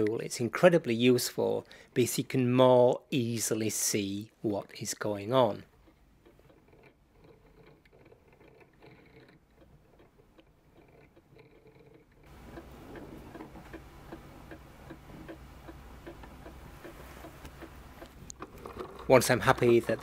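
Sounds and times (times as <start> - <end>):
clock ticking: 5.1 - 20.0
low steady hum: 12.2 - 20.0.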